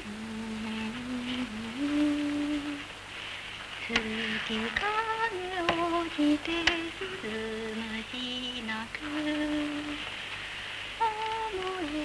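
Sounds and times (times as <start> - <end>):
person humming a slow tune: 0.0 - 2.9, 3.8 - 10.0, 11.0 - 12.0
soundtrack crackle clicks: 3.8 - 10.2, 11.0 - 12.0.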